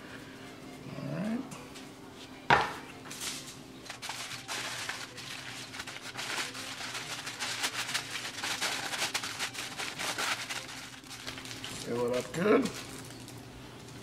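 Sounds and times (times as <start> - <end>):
aluminium foil crinkling: 3.1 - 14.0.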